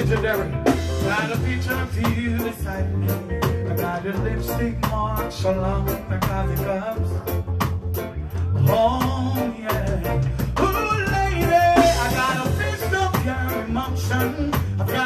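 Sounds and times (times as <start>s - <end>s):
live reggae band: 0.0s - 15.0s
man singing: 0.0s - 15.0s.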